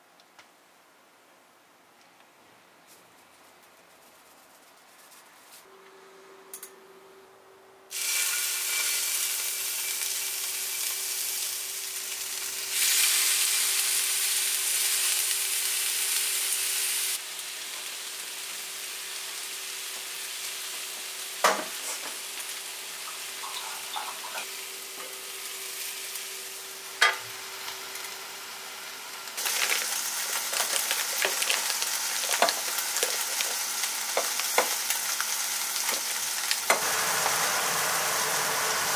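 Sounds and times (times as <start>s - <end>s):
skewers sizzling on hot plate: 7.9s - 38.9s.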